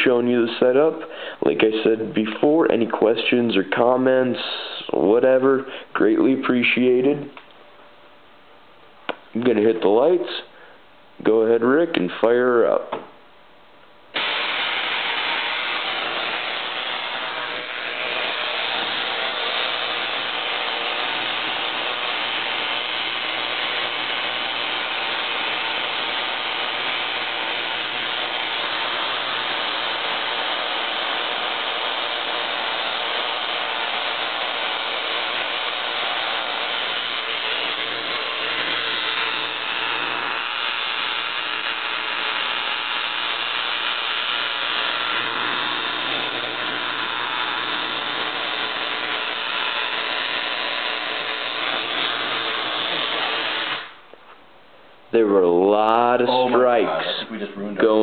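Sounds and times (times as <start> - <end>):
tesla coil rasping buzz: 14.1 - 54.2.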